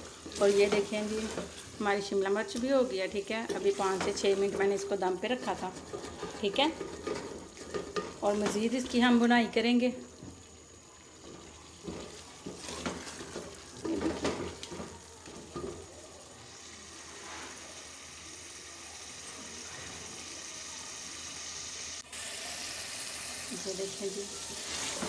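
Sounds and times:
food sizzling in a pot: 0.0s - 25.0s
wooden spoon scraping a pot: 3.4s - 9.0s, 11.2s - 15.8s.

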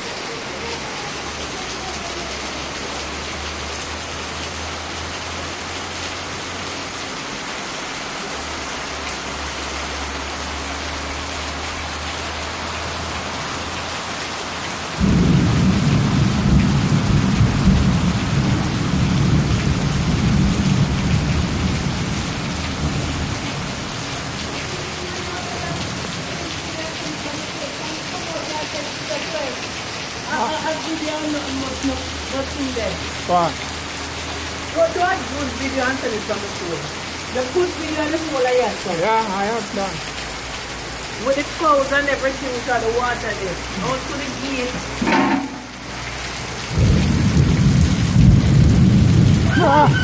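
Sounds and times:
heavy rain pouring: 0.0s - 50.0s
thunder rumbling: 15.0s - 23.8s, 46.7s - 50.0s.

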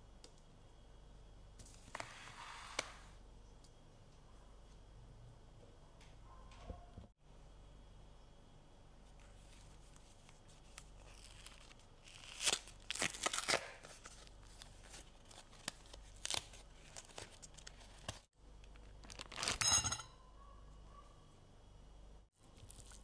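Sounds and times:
crinkly sheet rustling and tearing: 9.4s - 18.3s, 18.9s - 19.6s
short ringing clink: 19.6s - 20.2s.

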